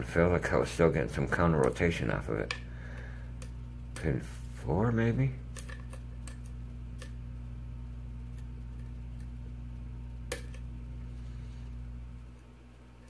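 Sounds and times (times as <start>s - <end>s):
steady low hum: 0.0s - 13.0s.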